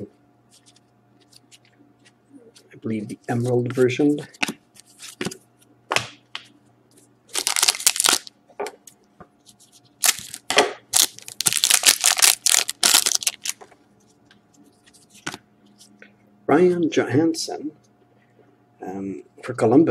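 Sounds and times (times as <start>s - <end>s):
foil wrapper crinkling and tearing: 7.3s - 8.3s, 10.0s - 13.6s.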